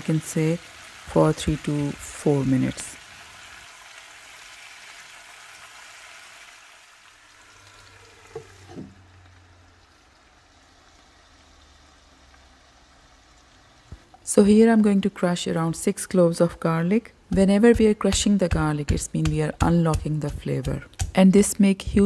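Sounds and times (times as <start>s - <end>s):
potatoes sizzling in oil: 0.0s - 14.8s.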